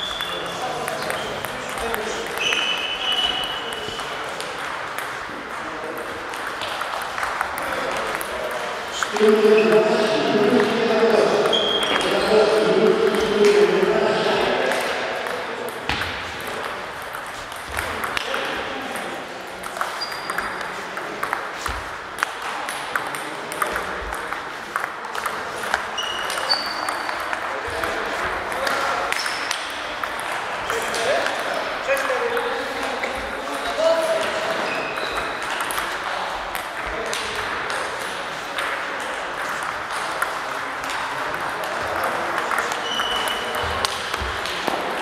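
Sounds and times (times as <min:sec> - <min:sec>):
table tennis balls clicking: 0:00.0 - 0:13.7, 0:14.6 - 0:33.4, 0:34.1 - 0:45.0
busy hall background noise: 0:00.0 - 0:45.0
faint murmur of voices: 0:00.0 - 0:45.0
table tennis ball clicking: 0:15.7 - 0:31.4.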